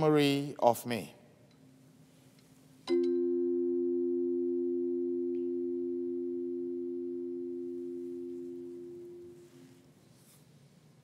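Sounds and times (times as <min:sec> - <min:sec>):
low-pitched bell ringing: 0:02.9 - 0:09.7.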